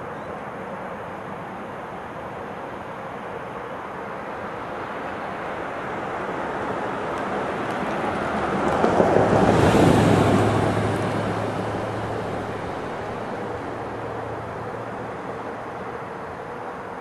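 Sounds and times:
rushing noise: 0:04.2 - 0:17.0.

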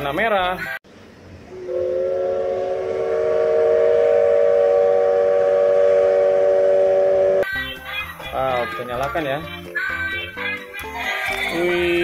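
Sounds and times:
moving train noise: 0:00.9 - 0:07.5
steam locomotive whistle: 0:01.5 - 0:07.5.

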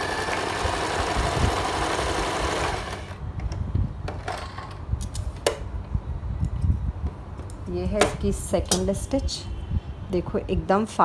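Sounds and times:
electric sewing machine stitching: 0:00.0 - 0:03.2.

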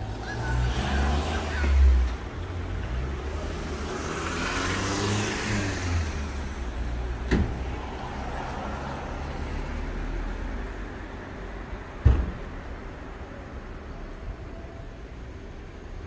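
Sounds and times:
car passing close: 0:00.0 - 0:11.0
city traffic rumble: 0:00.0 - 0:16.0.

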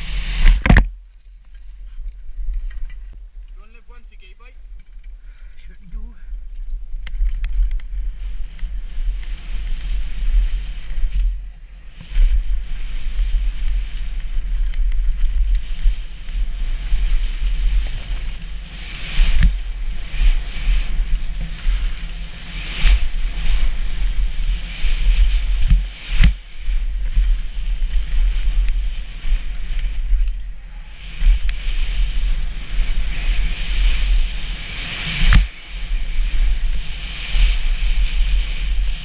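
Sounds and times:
bike rattling: 0:00.0 - 0:39.0
wind buffeting microphone: 0:00.0 - 0:39.0.

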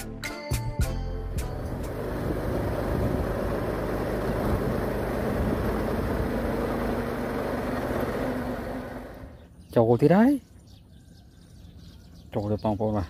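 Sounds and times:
engine rumble: 0:01.2 - 0:10.2
road and wind noise: 0:01.3 - 0:12.5.

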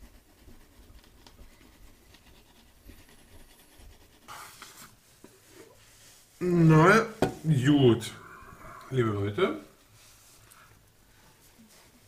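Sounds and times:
toothbrush scrubbing teeth: 0:00.0 - 0:04.3.

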